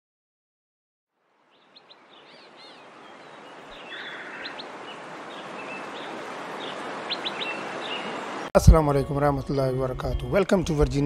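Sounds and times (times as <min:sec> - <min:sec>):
steady outdoor hiss: 0:01.1 - 0:11.0
birds chirping: 0:01.4 - 0:08.5
bird trill: 0:01.5 - 0:08.4.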